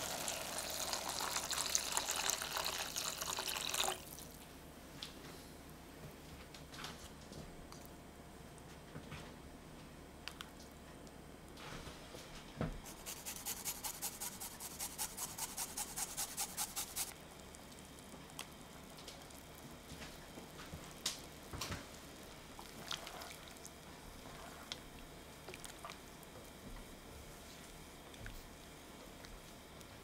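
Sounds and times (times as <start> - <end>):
garlic rasping on grater: 12.9 - 17.1
spatula stirring in pan: 12.9 - 17.1.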